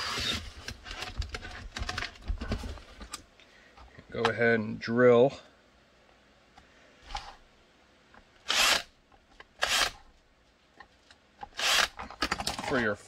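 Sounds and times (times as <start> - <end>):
cordless drill bursts: 8.5 - 8.9, 9.6 - 10.0, 11.6 - 12.0.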